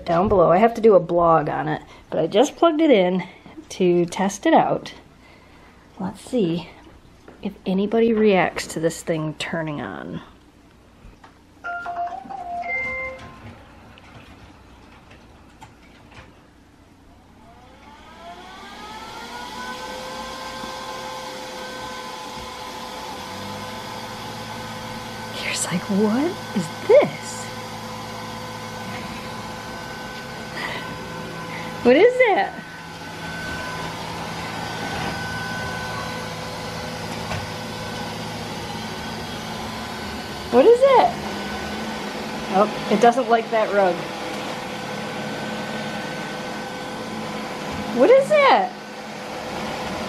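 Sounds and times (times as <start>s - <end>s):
robot vacuum motor whirring: 17.8s - 48.7s.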